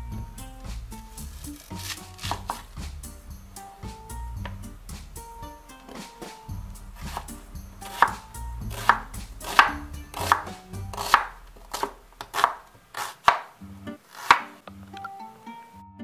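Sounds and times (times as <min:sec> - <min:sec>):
knife slicing onion on wooden board: 0:01.0 - 0:03.1, 0:05.8 - 0:14.6.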